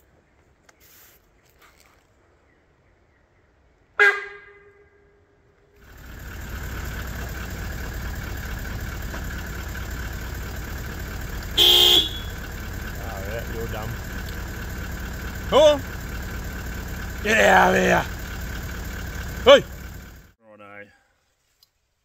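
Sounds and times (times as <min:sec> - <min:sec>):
deer alarm honks: 0:04.0 - 0:05.1, 0:11.0 - 0:16.1.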